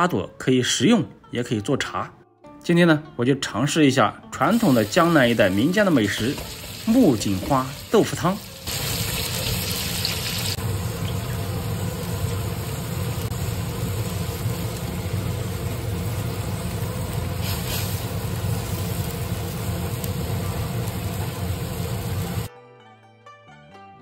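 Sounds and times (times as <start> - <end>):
wok bubbling: 4.7 - 22.5
hiss: 15.9 - 19.2.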